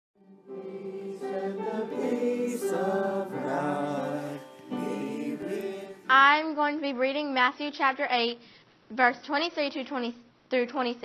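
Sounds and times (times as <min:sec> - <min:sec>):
choir singing: 0:00.2 - 0:06.2.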